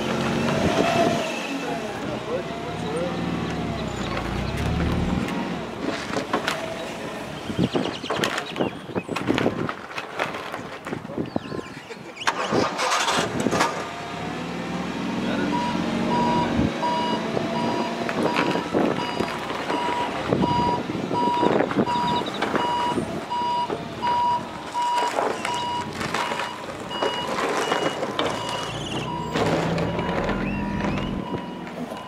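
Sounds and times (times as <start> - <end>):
forklift engine running: 2.0 - 5.8, 12.4 - 32.0
reversing alarm beeps: 15.5 - 32.0.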